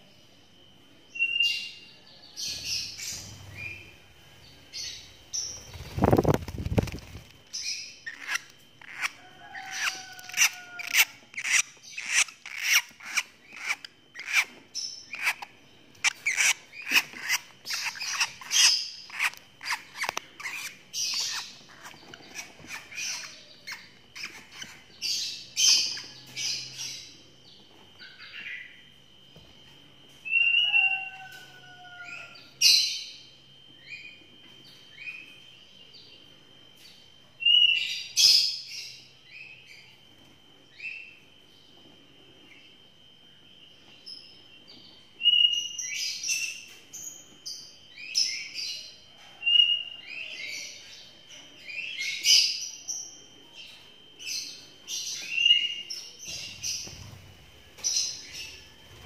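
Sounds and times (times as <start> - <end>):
lovebirds chirping: 1.2 - 27.2.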